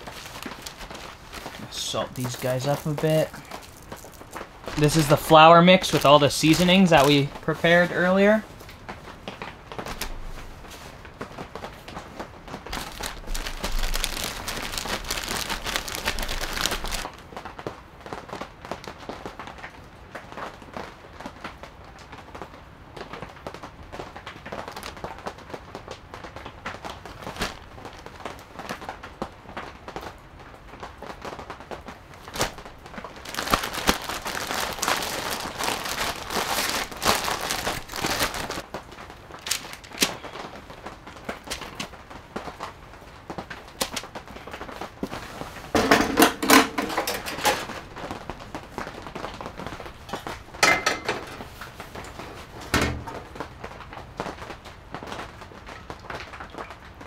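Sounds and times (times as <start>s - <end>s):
plastic bag crinkling: 0.0s - 8.8s, 12.5s - 17.1s, 32.2s - 42.8s, 43.4s - 53.8s.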